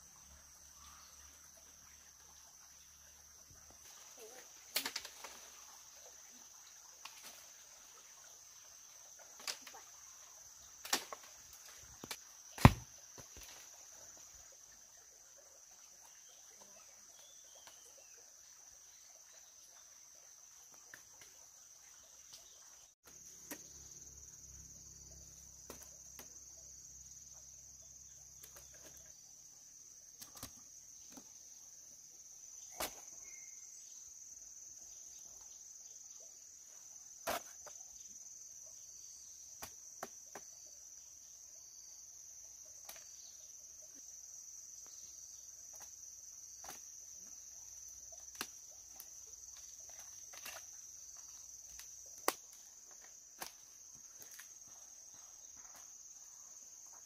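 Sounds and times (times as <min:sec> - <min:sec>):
insects chorus: 0:00.0 - 0:57.0
fruit knocking into basket: 0:12.6 - 0:13.3.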